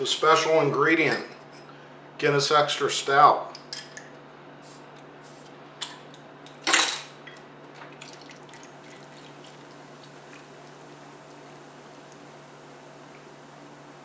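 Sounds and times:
liquid splashing and dripping: 7.7 - 12.3.

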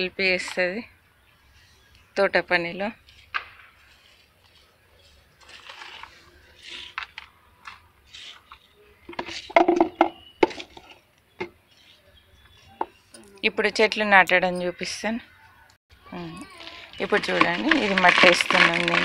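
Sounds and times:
soil rustling and sliding: 3.8 - 7.3, 16.4 - 19.0
trowel scraping and knocking: 8.1 - 11.0.

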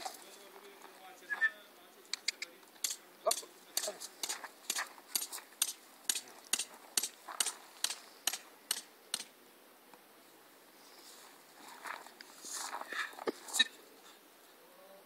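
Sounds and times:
footsteps on gravel: 3.9 - 8.0, 11.0 - 13.6.

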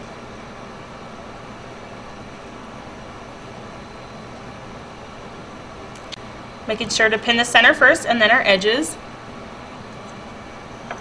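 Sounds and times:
room hiss and hum: 0.0 - 11.0.

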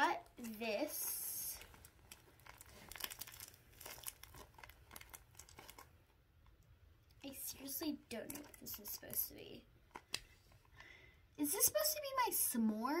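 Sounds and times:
paper crinkling and rustling: 0.4 - 6.0.

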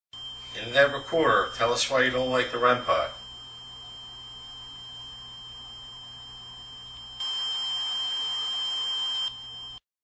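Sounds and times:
faint high whine: 0.2 - 9.8
recorder hiss: 0.2 - 9.8.

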